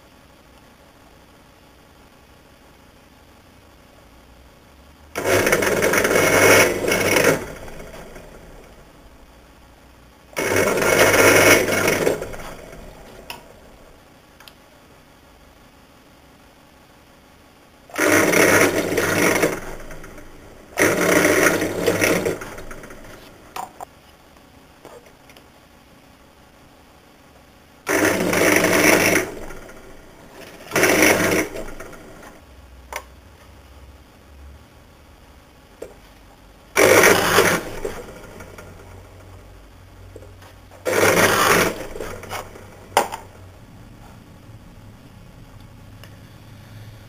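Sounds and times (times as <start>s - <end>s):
drill press boring wood: 5.2s - 8.8s, 10.3s - 13.7s, 17.9s - 23.7s, 27.9s - 32.4s, 36.8s - 39.3s, 40.8s - 43.4s
drill bit cutting into block: 20.8s - 23.2s, 27.9s - 29.8s, 30.4s - 32.1s, 36.8s - 38.1s, 40.9s - 42.6s.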